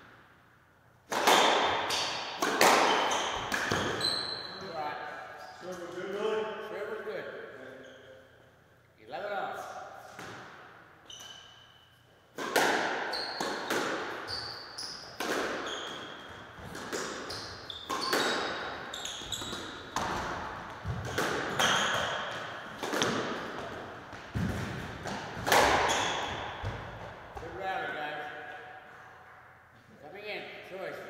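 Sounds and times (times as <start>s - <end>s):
squash ball hit by rackets: 1.1s - 4.0s, 10.2s - 10.6s, 12.4s - 27.5s
shoes squeaking on wooden floor: 2.9s - 4.6s, 13.1s - 25.0s, 25.7s - 27.4s
ball banging off walls: 15.2s - 27.5s.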